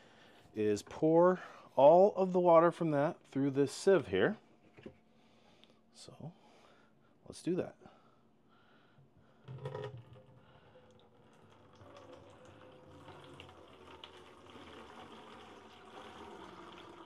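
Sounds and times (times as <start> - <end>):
container clunk: 9.4 - 10.7
water trickling through a sieve: 9.4 - 17.0.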